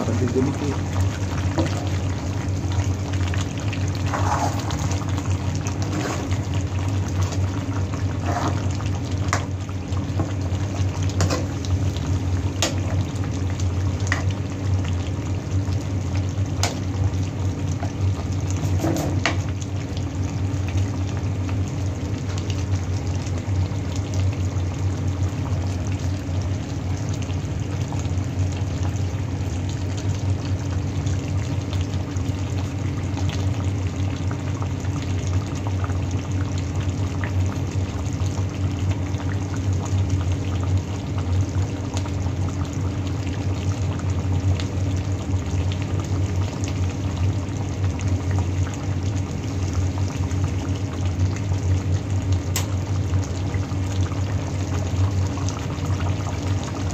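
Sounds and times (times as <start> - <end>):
stew simmering and bubbling: 0.0 - 56.9.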